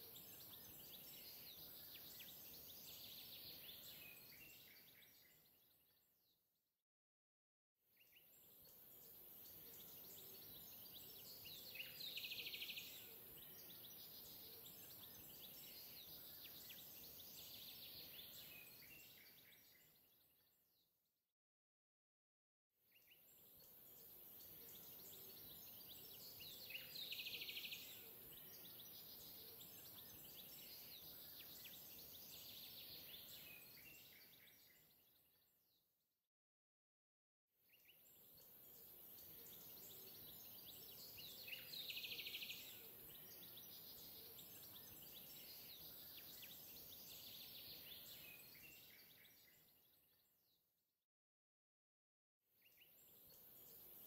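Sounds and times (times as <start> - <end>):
bird chirps: 8.0 - 20.4, 22.9 - 35.5, 37.8 - 50.4.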